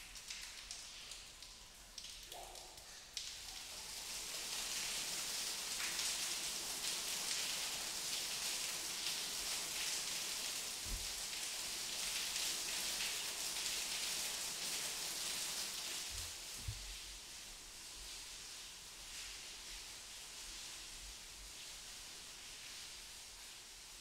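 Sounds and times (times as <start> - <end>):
water dripping and splashing: 0.0 - 24.0
soft low thud: 10.9 - 11.1.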